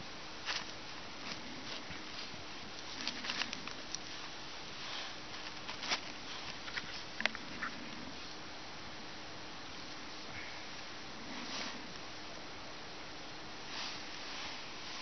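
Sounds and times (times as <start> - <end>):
steady hiss: 0.0 - 15.0
twigs crackling in campfire: 0.4 - 7.7.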